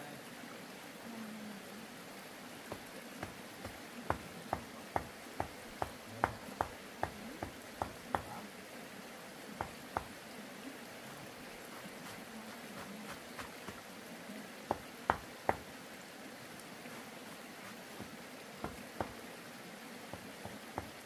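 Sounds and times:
steady background hiss: 0:00.0 - 0:21.0
sharp knocks: 0:02.7 - 0:08.3, 0:14.7 - 0:15.6.

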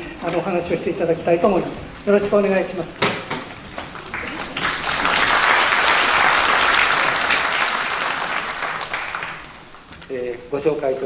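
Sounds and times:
audience applauding: 0:03.8 - 0:10.1.

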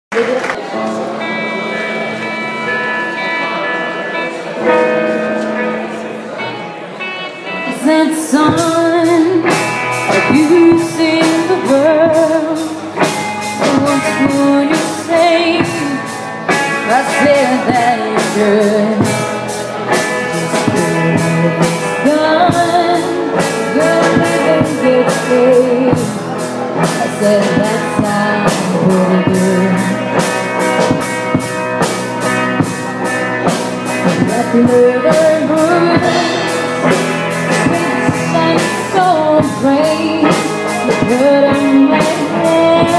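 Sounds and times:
bass guitar: 0:00.1 - 0:42.9
electric guitar: 0:00.1 - 0:42.9
woman singing: 0:07.6 - 0:12.8, 0:13.6 - 0:19.3, 0:20.4 - 0:30.2, 0:34.1 - 0:42.9
drum kit beat: 0:08.5 - 0:42.9.

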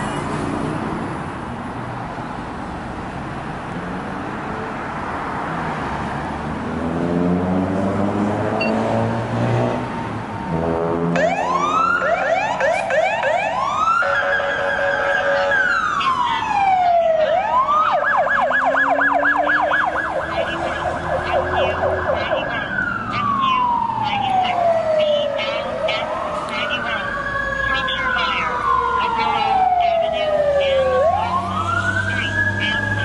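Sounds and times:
fire engine siren: 0:07.1 - 0:33.0.

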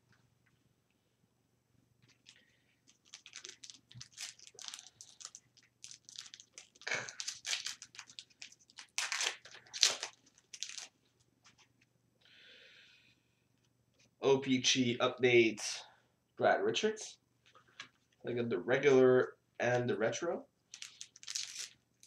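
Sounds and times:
foil wrapper tearing and crinkling: 0:02.2 - 0:11.0, 0:20.7 - 0:21.8.

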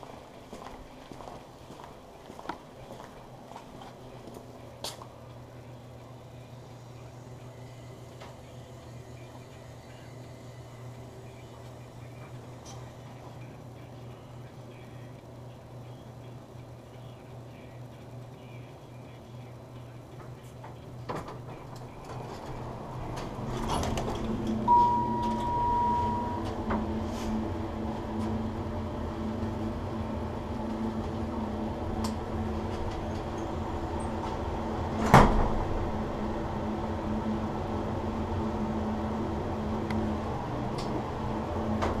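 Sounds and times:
elevator car humming: 0:00.0 - 0:42.0
elevator doors sliding: 0:21.3 - 0:28.5, 0:29.1 - 0:42.0
electronic beep: 0:24.7 - 0:26.5.

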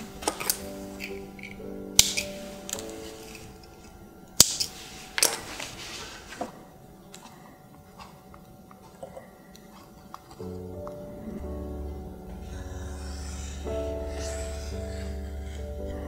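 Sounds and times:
pliers clicking: 0:00.2 - 0:04.7.

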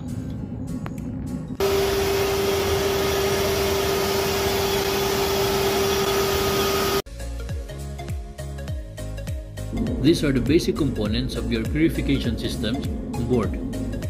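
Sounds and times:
engine room machinery noise: 0:01.5 - 0:07.0
steady pitched hum: 0:01.6 - 0:07.0.

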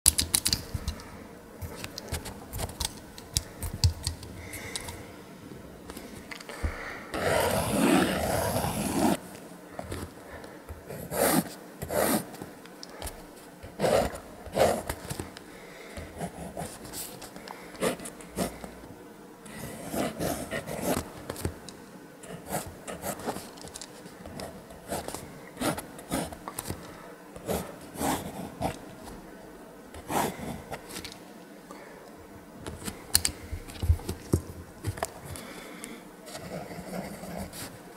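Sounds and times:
pencil scratching on paper: 0:07.2 - 0:09.2, 0:10.9 - 0:12.4, 0:13.7 - 0:15.1, 0:19.6 - 0:21.2, 0:22.2 - 0:23.6, 0:24.3 - 0:26.4, 0:27.4 - 0:29.0, 0:30.0 - 0:30.9, 0:36.3 - 0:37.8.

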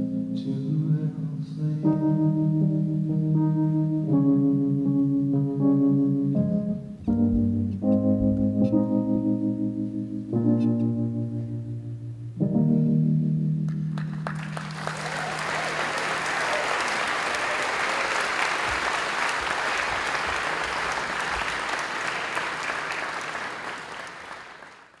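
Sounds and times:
electric piano chord: 0:00.0 - 0:14.7
audience applause: 0:13.9 - 0:25.0.

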